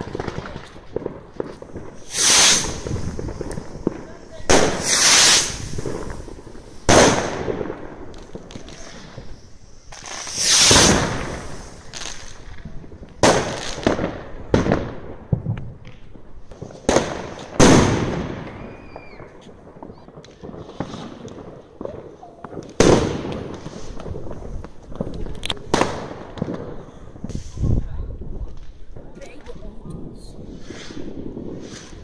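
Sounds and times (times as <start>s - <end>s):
rushing firework bursts: 0.0s - 15.2s, 25.7s - 27.9s, 29.6s - 32.0s
fireworks bangs: 0.0s - 32.0s.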